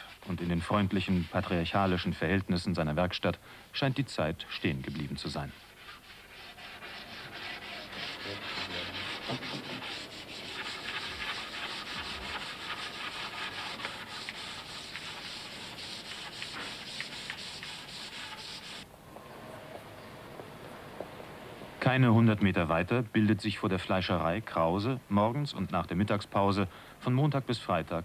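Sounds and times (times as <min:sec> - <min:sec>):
sandpaper rubbing on wood: 0:00.0 - 0:02.1, 0:04.7 - 0:18.8.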